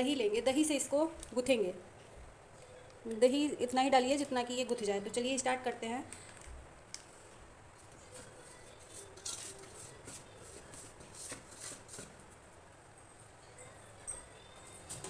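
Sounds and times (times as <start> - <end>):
hand mixing flour in bowl: 8.0 - 12.3.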